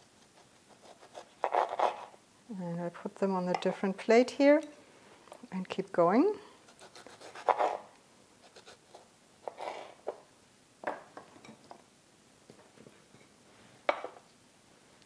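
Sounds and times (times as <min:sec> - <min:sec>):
knife slicing tomatoes: 0:00.2 - 0:02.1, 0:06.7 - 0:07.9.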